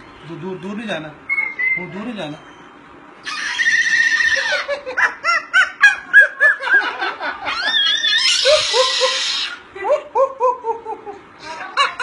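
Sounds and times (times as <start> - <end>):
cockatoo screeching: 3.2 - 4.8, 7.4 - 9.7
cockatoo laugh-like squawks: 3.2 - 9.6.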